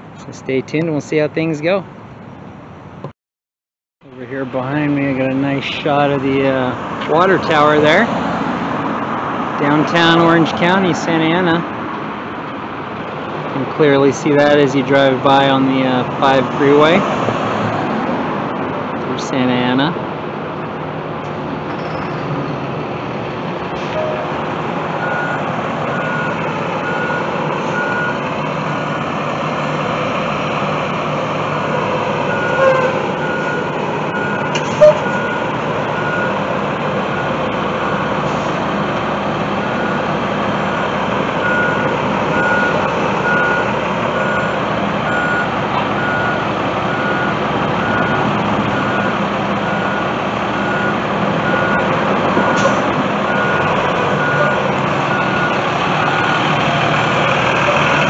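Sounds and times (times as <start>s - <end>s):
bus engine running: 4.0s - 58.0s
backup alarm beeping: 25.0s - 28.2s, 32.3s - 36.4s, 40.7s - 52.7s.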